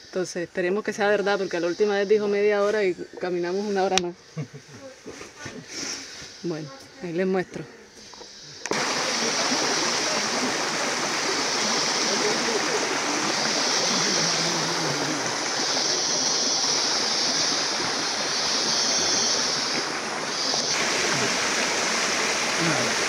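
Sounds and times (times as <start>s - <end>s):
flowing water rushing: 7.9s - 23.0s.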